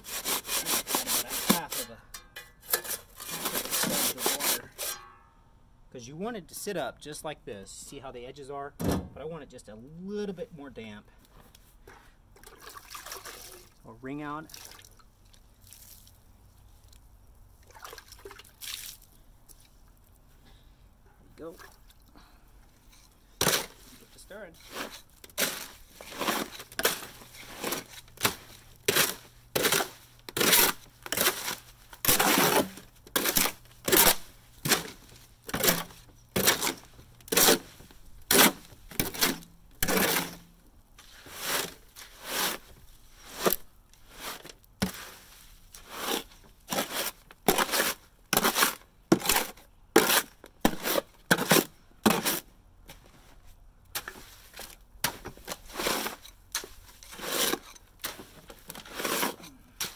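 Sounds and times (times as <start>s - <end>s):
shovel scraping concrete mix: 0.0s - 2.0s, 2.6s - 5.0s, 23.4s - 40.4s, 41.0s - 52.5s, 53.9s - 59.9s.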